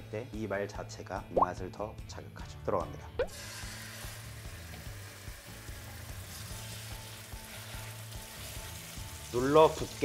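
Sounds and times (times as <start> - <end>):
pork sizzling in hot oil: 3.2 - 10.0.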